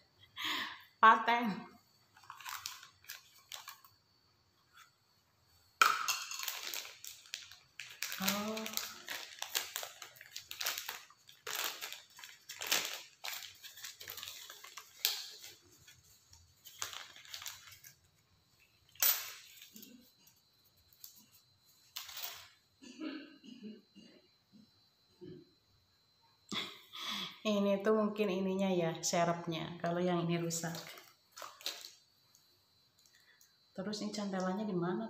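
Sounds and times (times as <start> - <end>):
plastic packaging crinkling: 2.1 - 3.9, 5.8 - 18.1, 30.6 - 32.0.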